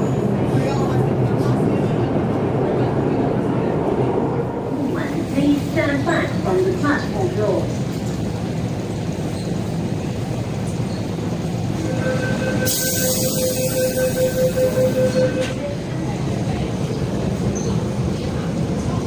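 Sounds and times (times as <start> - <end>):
metro train rumbling: 0.0 - 19.0
steady pitched tone: 11.8 - 15.6.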